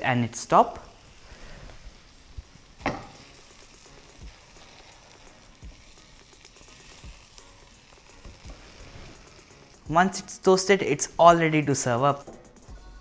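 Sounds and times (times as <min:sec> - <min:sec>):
bun sizzling in butter: 0:00.0 - 0:12.6.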